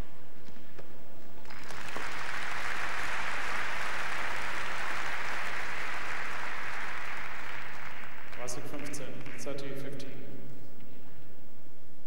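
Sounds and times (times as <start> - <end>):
crowd applauding: 1.4 - 9.7.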